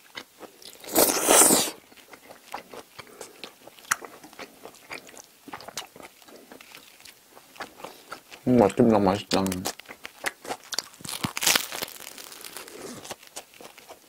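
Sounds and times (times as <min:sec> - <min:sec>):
close-up chewing with mouth clicks: 0:00.0 - 0:14.0
person slurping noodles: 0:00.8 - 0:01.8.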